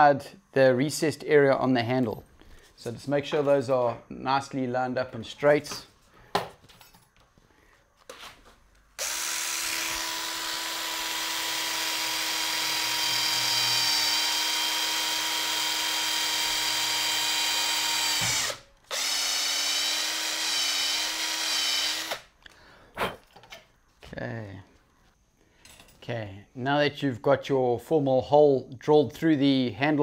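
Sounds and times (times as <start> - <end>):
cordless drill boring: 9.0 - 22.3.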